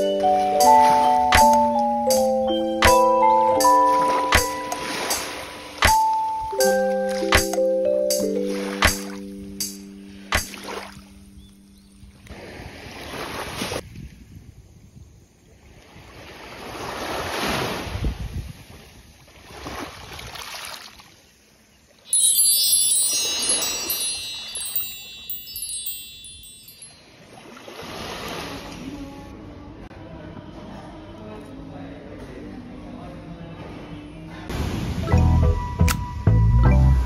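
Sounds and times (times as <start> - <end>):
bright chime tones: 0.0 - 10.2, 22.1 - 27.4
small waves on pebble beach: 12.3 - 13.8, 15.6 - 21.2, 27.1 - 28.9.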